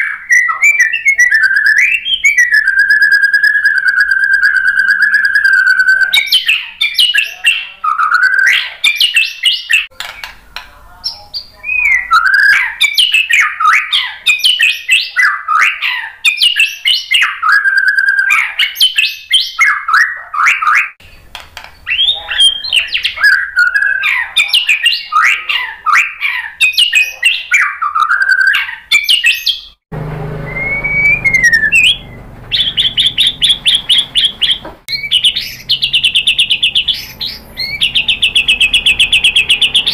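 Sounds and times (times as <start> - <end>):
bird singing whistled phrases: 0.0 - 9.9, 11.1 - 21.0, 21.8 - 29.8, 30.4 - 39.9
low hum: 29.9 - 34.2.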